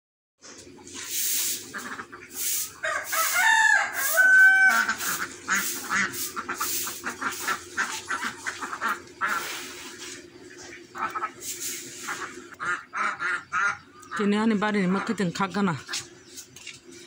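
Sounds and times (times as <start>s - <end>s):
rooster crowing: 2.8s - 5.1s
short hissy noises: 11.4s - 12.3s.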